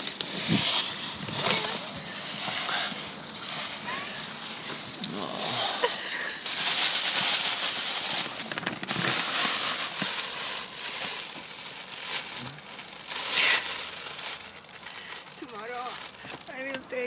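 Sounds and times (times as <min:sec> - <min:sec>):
foil wrapping crumpling: 0:00.0 - 0:17.0.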